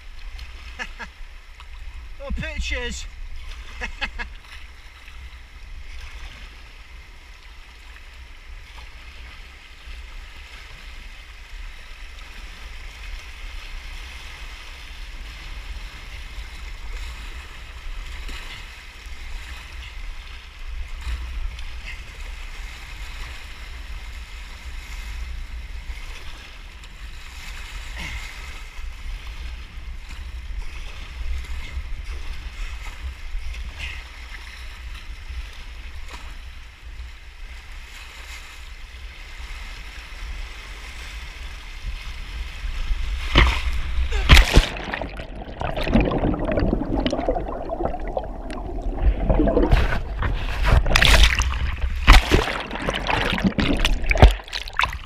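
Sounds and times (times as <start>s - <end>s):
water rushing around kayak hull: 0.0s - 55.0s
water splashes: 40.6s - 55.0s
wind buffeting microphone: 45.1s - 55.0s.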